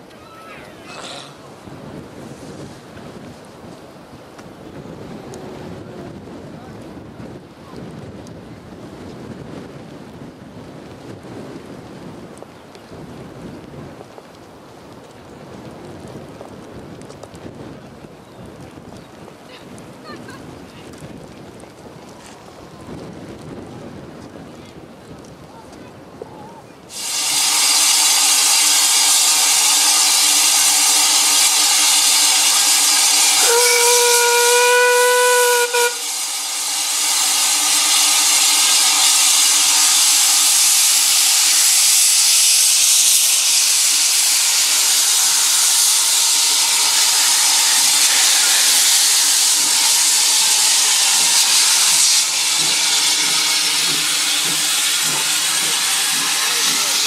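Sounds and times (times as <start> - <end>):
steam hissing from locomotive: 26.9 - 57.0
steam whistle blast: 26.9 - 57.0.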